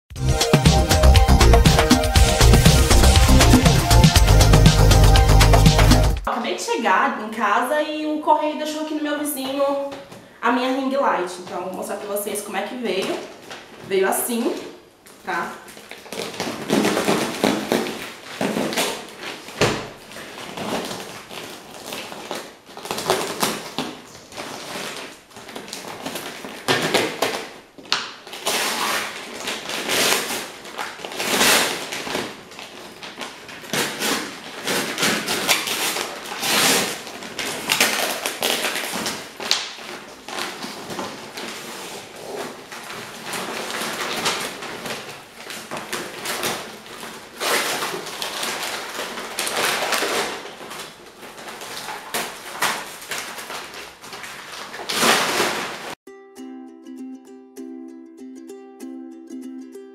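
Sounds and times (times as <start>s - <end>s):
paper and plastic wrapping tearing: 1.4s - 6.0s, 12.9s - 13.9s, 14.5s - 56.0s.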